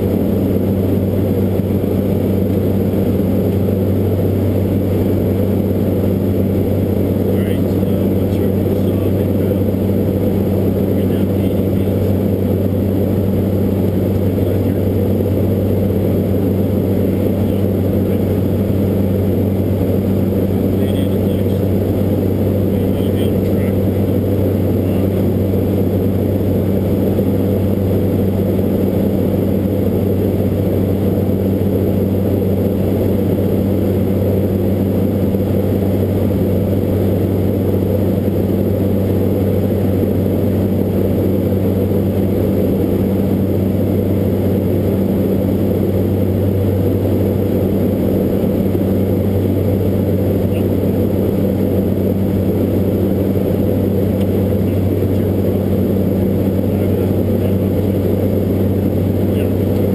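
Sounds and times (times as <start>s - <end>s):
turboprop engines droning: 0.0s - 59.9s.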